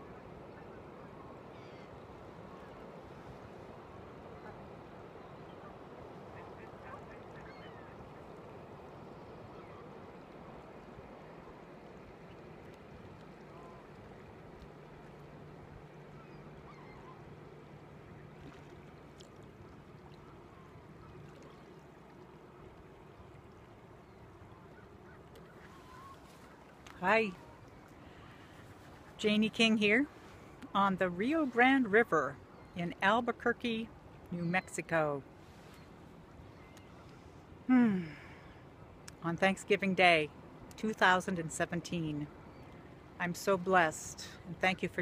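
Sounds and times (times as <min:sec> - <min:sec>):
distant waterfowl calls: 0:00.0 - 0:32.9, 0:35.4 - 0:39.0
wind: 0:00.0 - 0:45.0.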